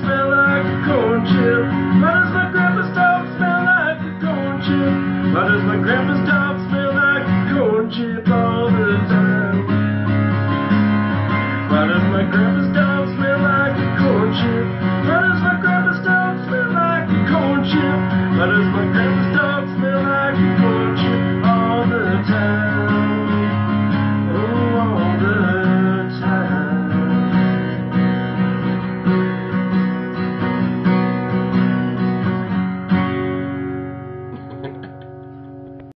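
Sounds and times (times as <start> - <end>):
man singing: 0.0 - 28.0
acoustic guitar strumming: 0.0 - 35.9.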